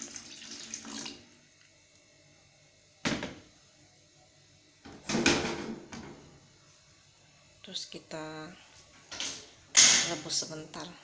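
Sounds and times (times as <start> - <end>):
water poured into metal pot: 0.0 - 1.2.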